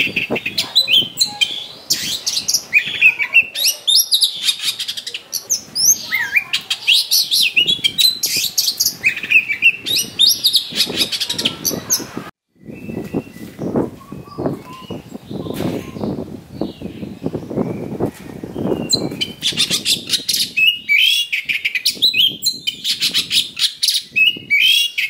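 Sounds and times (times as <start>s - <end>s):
bird singing varied whistles: 5.5s - 16.2s, 18.6s - 25.0s.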